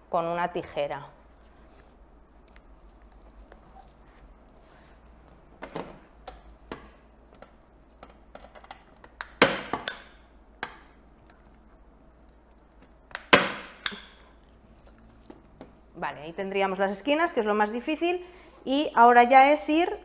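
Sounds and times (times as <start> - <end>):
staple gun snapping: 13.1 - 14.2.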